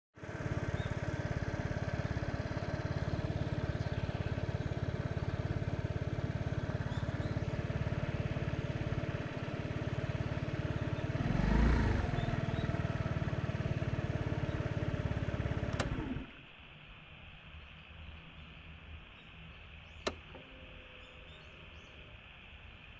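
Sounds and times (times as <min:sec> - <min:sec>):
scooter engine idling: 0:00.2 - 0:16.5.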